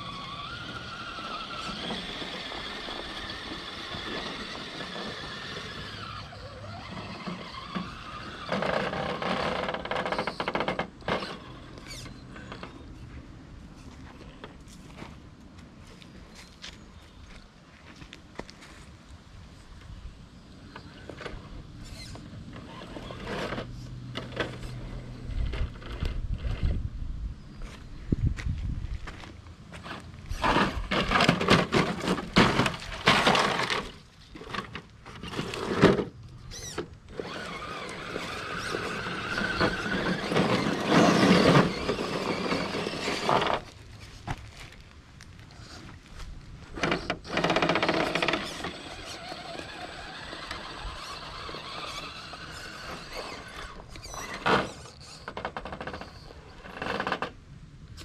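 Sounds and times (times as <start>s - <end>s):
electric motor whine: 0.0s - 12.8s, 36.5s - 43.7s, 46.8s - 56.6s
toy car tires scraping on planks: 0.0s - 15.2s, 20.6s - 26.8s, 29.0s - 57.4s
wind rumble on microphone: 24.8s - 29.2s.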